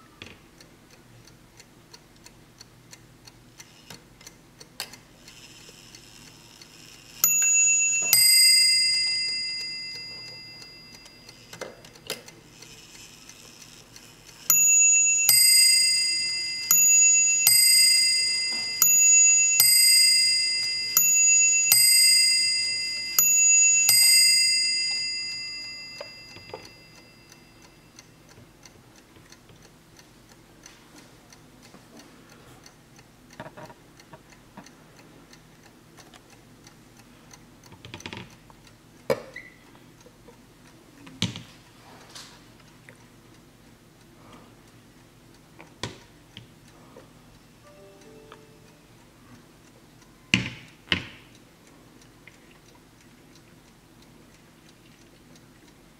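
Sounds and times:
clock ticking: 0.6s - 37.7s
clock bells striking: 7.2s - 11.4s, 14.5s - 27.7s.

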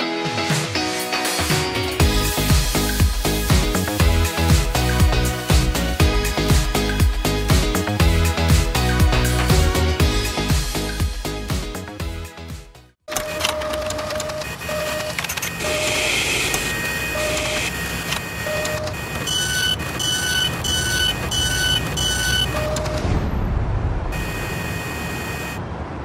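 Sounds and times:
music: 0.0s - 13.0s
whirring clattering machine: 13.1s - 23.0s
short electronic beeps: 14.2s - 23.1s, 24.1s - 25.6s.

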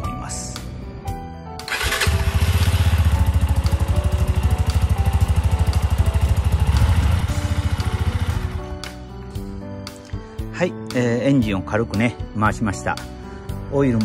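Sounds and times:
single-cylinder engine idling: 1.7s - 8.6s.

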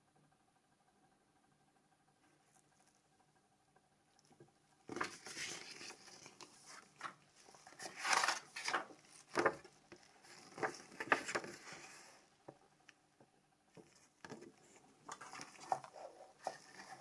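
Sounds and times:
paper leaflets rustling: 4.9s - 12.2s.

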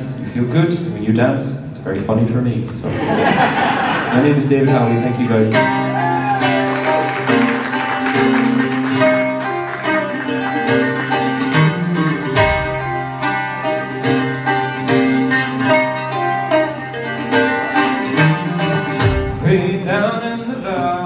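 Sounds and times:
acoustic guitar picking: 4.4s - 21.0s.

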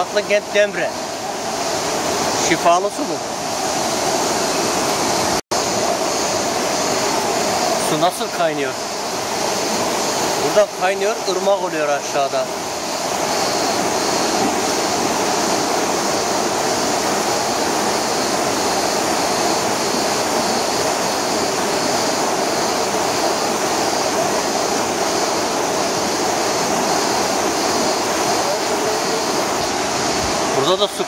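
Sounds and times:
stream rushing over rocks: 0.0s - 31.0s.

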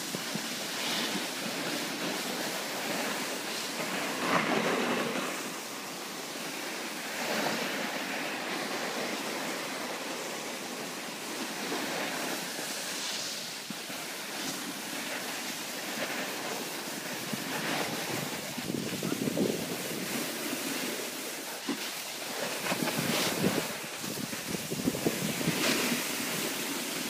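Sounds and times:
snowboard scraping over snow: 0.0s - 27.0s
wind buffeting microphone: 16.7s - 27.0s.

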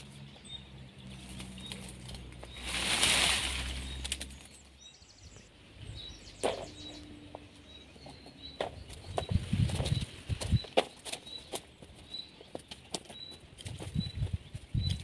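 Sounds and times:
dry leaves rustling: 0.0s - 4.8s
footsteps on leaf litter: 1.0s - 4.7s
twigs snapping: 1.1s - 4.7s.

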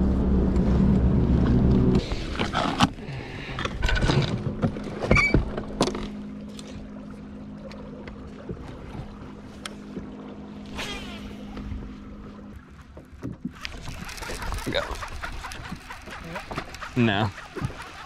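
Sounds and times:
fishing reel line whirring: 10.5s - 12.1s, 13.5s - 18.0s.

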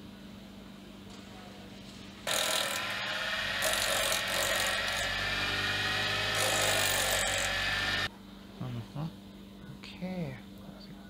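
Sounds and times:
bench grinder grinding steel: 2.3s - 8.1s.

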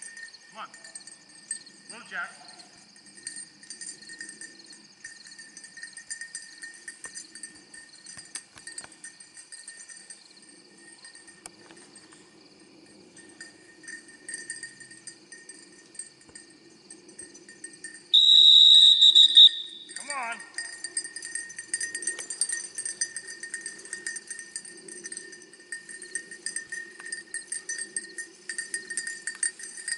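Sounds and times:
crickets chirring: 0.0s - 29.9s
dog whistle blast: 18.2s - 19.8s.

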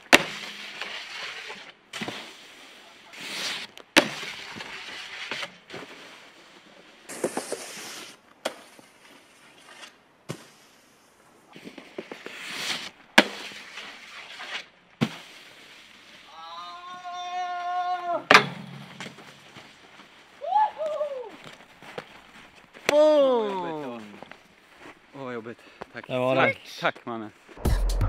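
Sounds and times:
snowboard scraping over snow: 0.4s - 17.0s.

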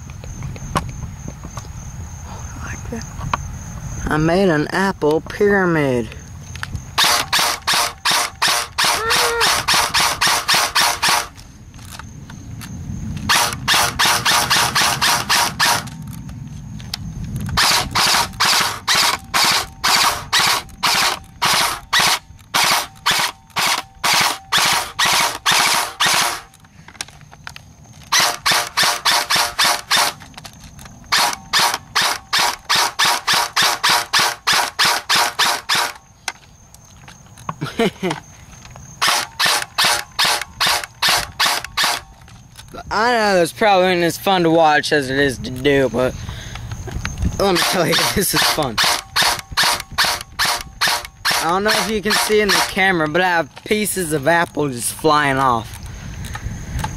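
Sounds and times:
airsoft rifle shots: 7.0s - 11.4s, 13.3s - 15.9s, 17.6s - 26.6s, 28.1s - 30.3s, 31.1s - 36.0s, 39.0s - 42.2s, 47.4s - 53.1s.

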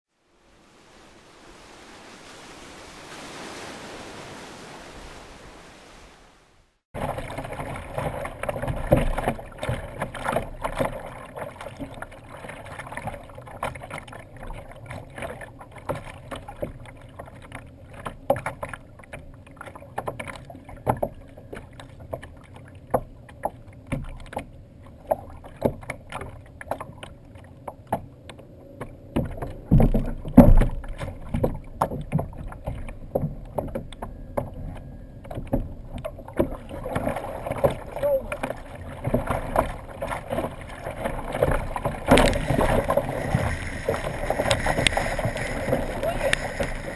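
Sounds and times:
soft surf noise: 0.1s - 13.5s, 36.3s - 46.9s
water slapping against kayak hull: 7.0s - 46.9s.

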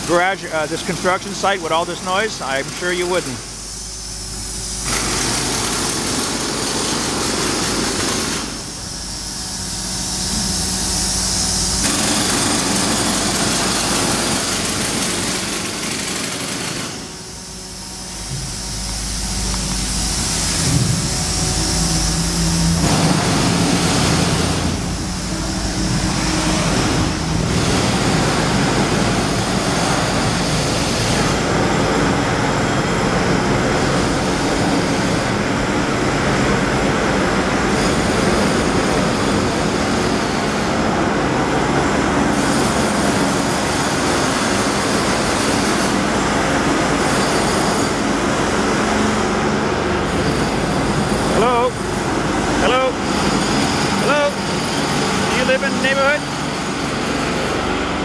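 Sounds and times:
jackhammer breaking concrete: 4.8s - 8.8s, 11.7s - 17.2s, 22.6s - 58.0s.

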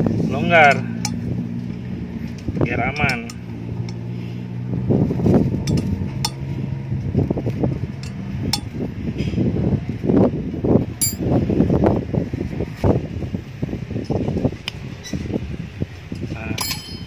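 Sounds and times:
steady low hum: 0.0s - 12.0s
allen key clicking on bolts: 2.3s - 4.0s, 5.7s - 6.4s, 8.0s - 8.7s, 16.6s - 17.0s.

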